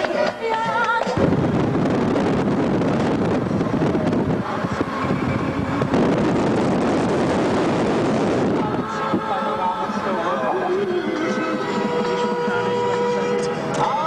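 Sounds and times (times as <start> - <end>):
road noise: 0.0 - 14.0
wind rushing over microphone: 1.1 - 10.2.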